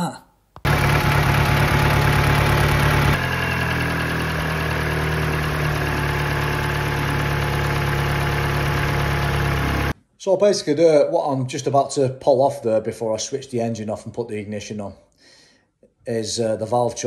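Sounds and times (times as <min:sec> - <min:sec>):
car engine idling rough: 0:00.6 - 0:10.0.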